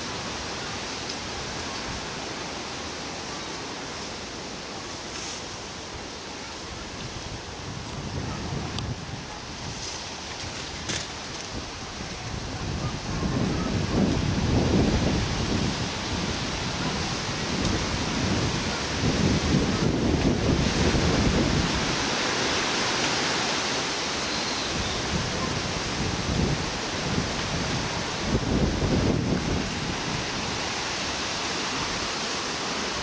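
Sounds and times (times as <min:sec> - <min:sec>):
wind buffeting microphone: 0:06.8 - 0:22.3, 0:24.7 - 0:32.1.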